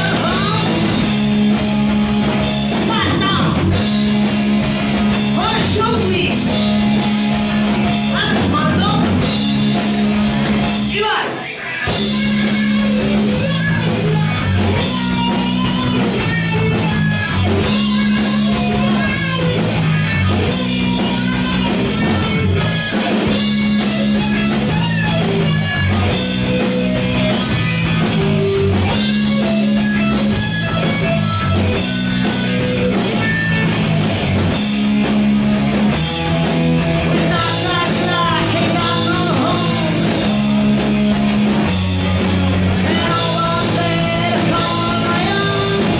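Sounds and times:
person singing into a microphone: 0.0s - 0.8s, 10.9s - 19.4s, 37.2s - 40.4s, 42.7s - 45.9s
bass notes: 0.0s - 11.2s, 11.8s - 45.9s
drums: 0.0s - 45.9s
electric guitars: 0.0s - 45.9s.

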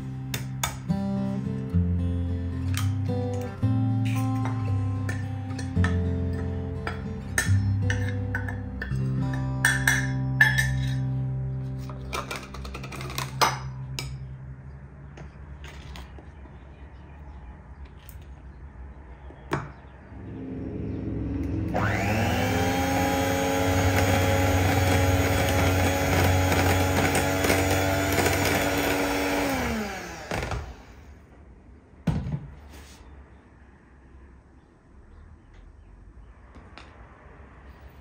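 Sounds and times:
electric hand mixer whining: 21.7s - 31.1s.

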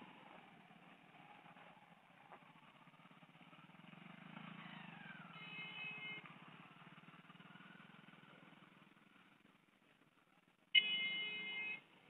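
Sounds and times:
faint motorcycle engines labouring: 0.0s - 12.0s
vehicle horn: 5.4s - 6.3s, 10.8s - 11.8s.

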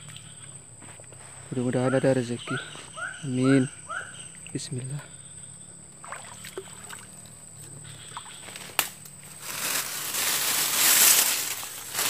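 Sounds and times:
branches and dry grass rustling: 7.2s - 12.0s
branch snapping: 8.4s - 12.0s.

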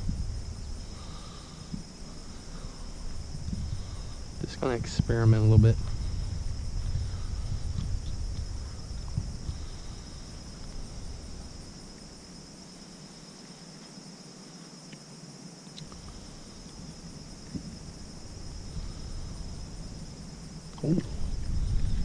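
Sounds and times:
low rumble: 0.0s - 11.9s, 17.4s - 22.0s
insects chirring: 0.0s - 22.0s.

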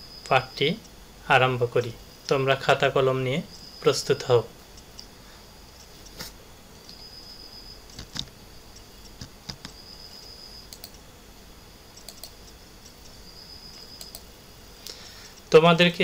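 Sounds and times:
faint computer clicks: 7.9s - 9.8s, 10.6s - 11.0s, 11.9s - 15.5s.

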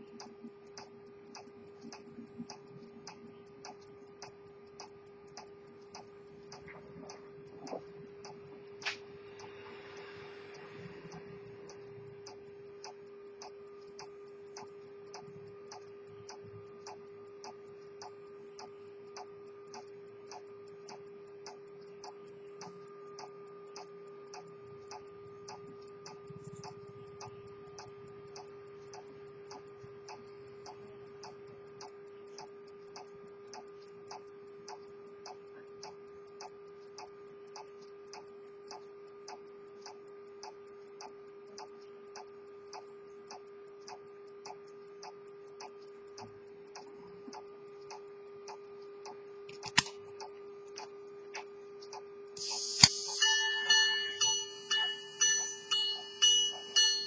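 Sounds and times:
pocket watch ticking: 0.0s - 57.0s
low hum: 52.4s - 57.0s.

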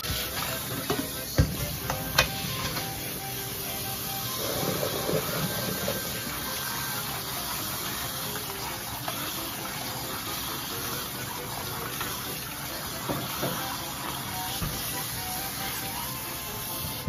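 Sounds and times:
tap water splashing into colander: 4.6s - 15.0s.

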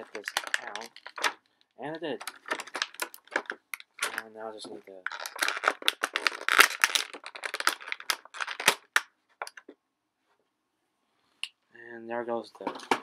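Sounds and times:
plastic bag crinkling: 0.0s - 1.5s, 2.1s - 9.6s.

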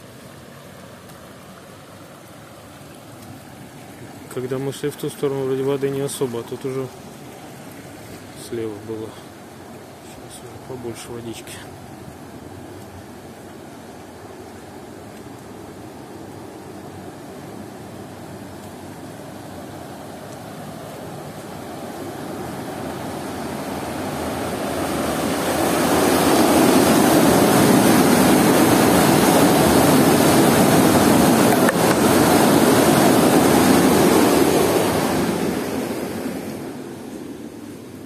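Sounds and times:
water rushing through concrete channel: 0.0s - 38.0s.

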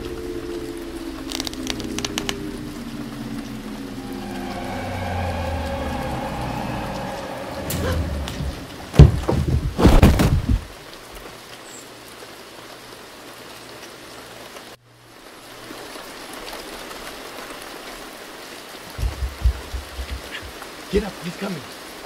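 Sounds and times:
steady hiss: 0.0s - 9.0s
person falling down carpeted stairs: 8.9s - 10.6s.

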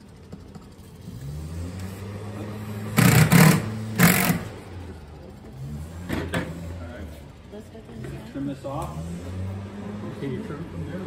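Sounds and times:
power driver driving screws: 3.0s - 4.5s.

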